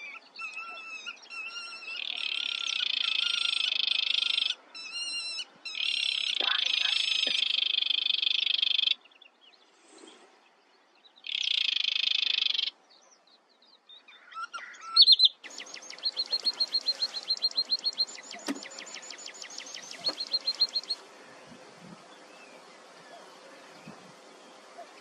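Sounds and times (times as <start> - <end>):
sedge warbler churring song: 5.7 - 10.2, 11.1 - 13.3, 14.5 - 22.6.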